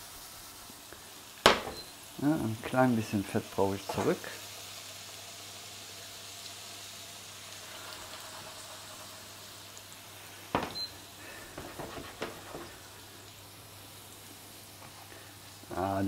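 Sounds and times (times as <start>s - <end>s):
food sizzling in pans: 0.0s - 16.0s
frying pan knocking on glass hob: 1.4s - 1.9s, 10.5s - 10.9s.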